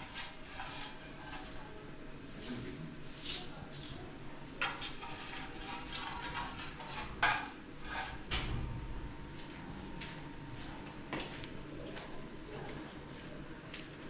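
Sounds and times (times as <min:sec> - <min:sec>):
metal dustpan scraping on tiles: 0:00.0 - 0:01.7, 0:02.3 - 0:04.0, 0:04.6 - 0:08.3
broom sweeping tiled floor: 0:00.0 - 0:14.0.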